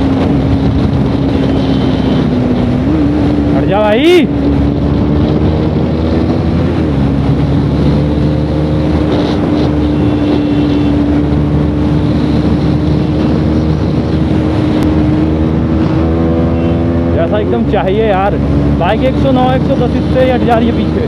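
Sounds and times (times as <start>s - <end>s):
wind on microphone: 0.0s - 17.2s
motorcycle engine running hard: 0.0s - 21.0s.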